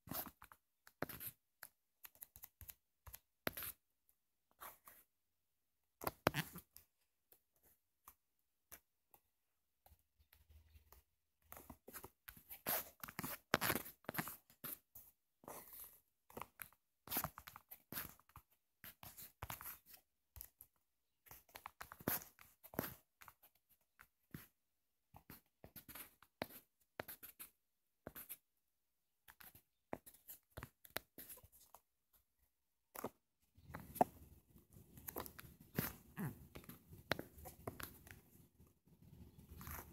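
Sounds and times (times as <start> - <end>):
scratching on touchscreen: 33.0 - 39.9.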